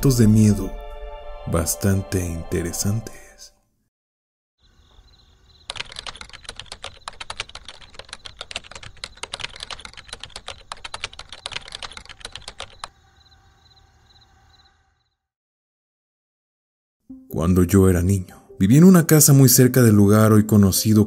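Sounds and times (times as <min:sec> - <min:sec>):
rapid keyboard typing: 0:05.7 - 0:12.9.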